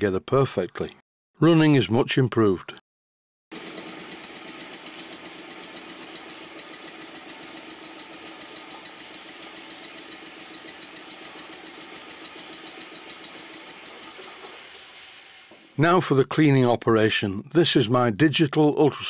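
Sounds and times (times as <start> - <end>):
toy steam engine chuffing: 3.5 - 15.0.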